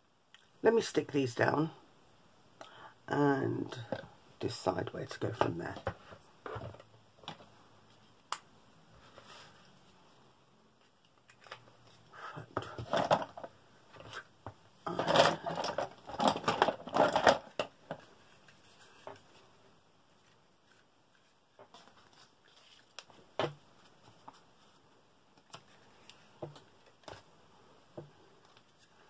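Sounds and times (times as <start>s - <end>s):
paper rustling and crinkling: 15.0s - 27.3s.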